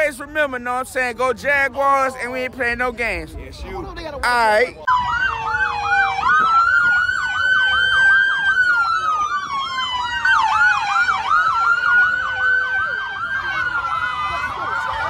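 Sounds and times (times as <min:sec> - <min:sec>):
siren slow wail: 0:04.8 - 0:15.0
siren fast yelp: 0:04.9 - 0:15.0.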